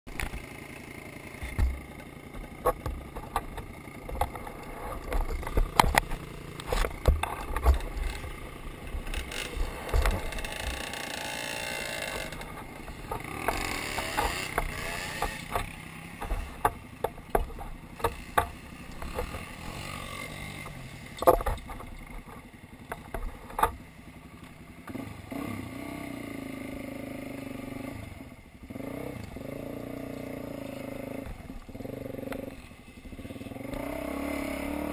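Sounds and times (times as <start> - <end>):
dirt bike engine running: 0.1 - 34.9
knocks and clatter: 1.4 - 11.2, 11.8 - 23.9.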